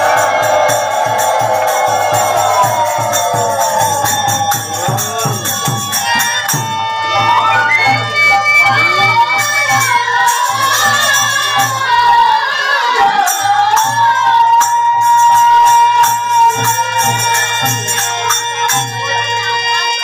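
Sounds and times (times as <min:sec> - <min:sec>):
hand cymbals clashing: 0:00.0 - 0:07.0
women singing: 0:09.2 - 0:18.2.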